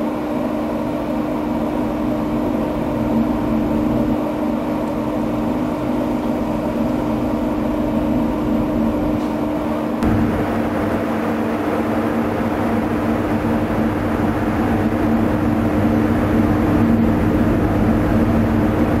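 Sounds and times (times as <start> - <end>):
ship diesel engine drone: 0.0 - 19.0
wind and water rushing: 10.0 - 19.0.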